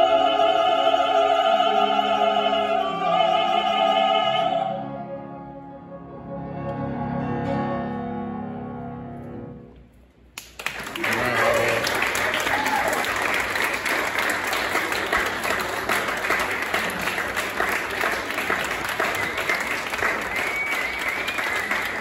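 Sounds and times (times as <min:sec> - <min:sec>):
audience applauding: 0:10.4 - 0:22.0.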